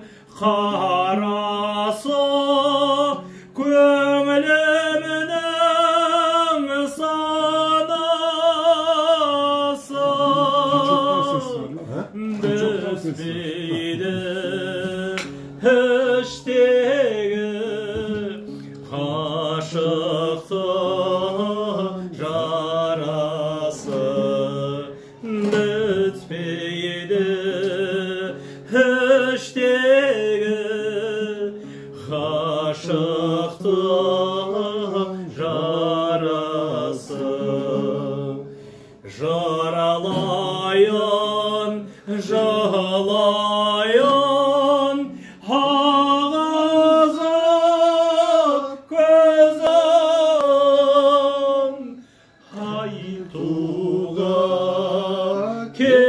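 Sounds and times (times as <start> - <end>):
man singing with vibrato: 0.0 - 56.0
strummed dombra: 0.0 - 56.0.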